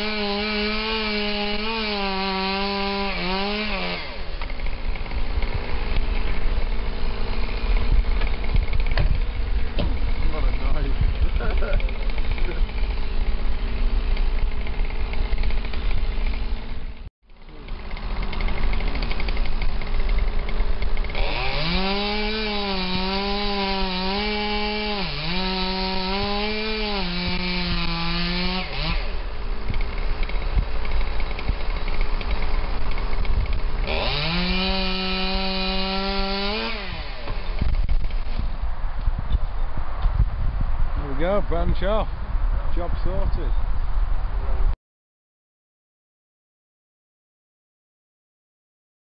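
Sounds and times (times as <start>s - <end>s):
chainsaw cutting wood: 0.0s - 38.5s.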